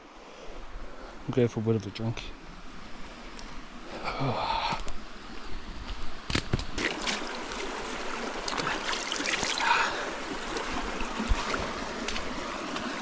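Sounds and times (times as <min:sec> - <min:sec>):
stream trickling: 0:00.4 - 0:13.0.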